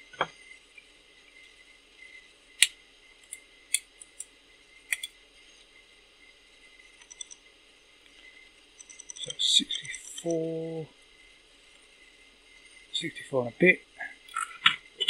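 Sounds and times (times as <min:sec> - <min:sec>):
low background hum: 0:00.0 - 0:15.0
metallic caliper clicks: 0:04.9 - 0:05.1.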